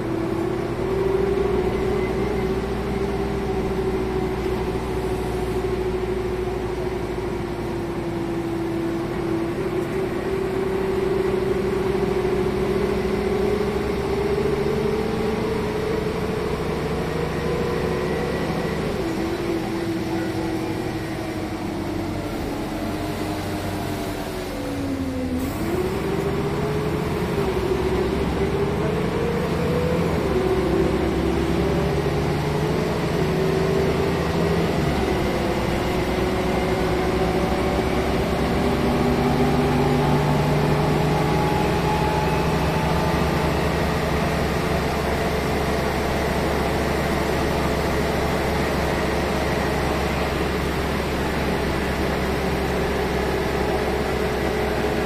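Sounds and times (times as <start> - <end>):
bus diesel engine running: 0.0 - 55.0
drivetrain whine: 0.0 - 55.0.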